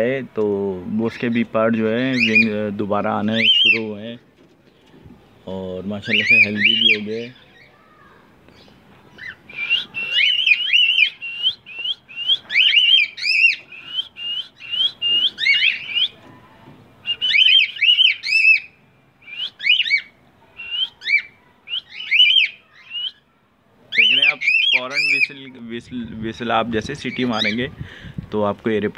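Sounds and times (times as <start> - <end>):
cockatiel whistling: 9.2 - 16.1, 17.0 - 23.2.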